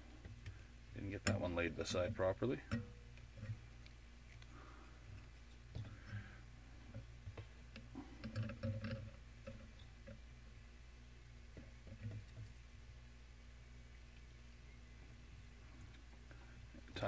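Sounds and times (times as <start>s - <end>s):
steady low hum: 0.0s - 17.0s
hands rustling thread: 3.1s - 10.3s.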